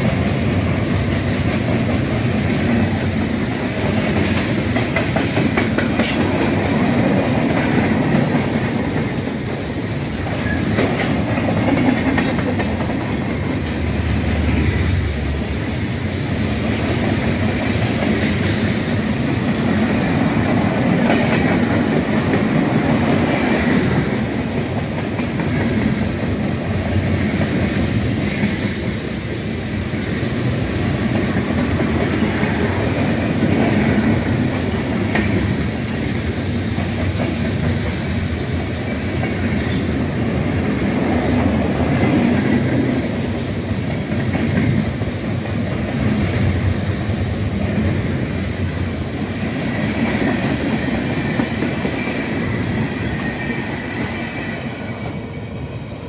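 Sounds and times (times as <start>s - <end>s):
wheels clicking over rail joints: 0.0s - 15.4s
freight train rumbling past: 0.0s - 56.0s.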